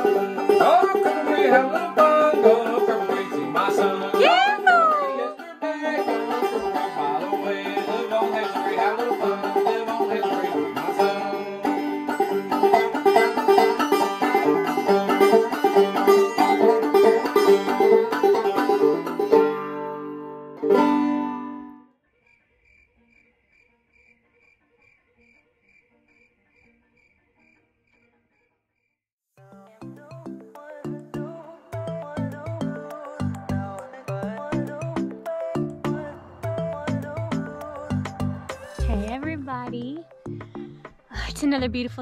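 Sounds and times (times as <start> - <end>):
banjo picking: 0.0 - 21.8, 32.4 - 40.6
crickets chirping: 22.1 - 29.0.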